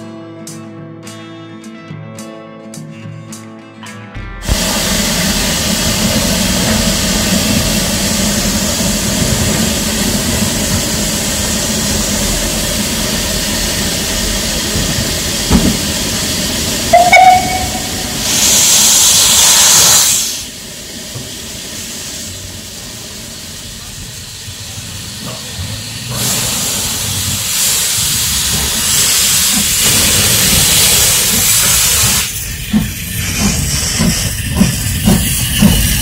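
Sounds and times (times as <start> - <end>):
loud rush of steam: 4.4 - 36.0
steam locomotive hissing: 4.4 - 36.0
steam whistle toot: 16.9 - 18.8.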